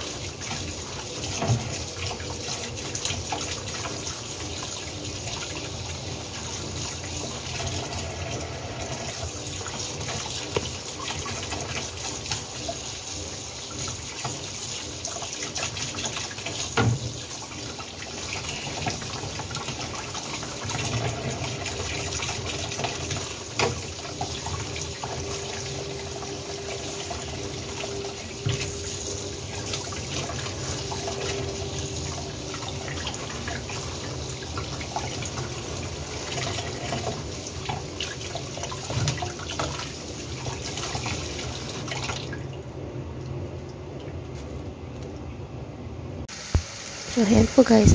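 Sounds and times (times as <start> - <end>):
tap water running into sink: 0.0 - 42.6.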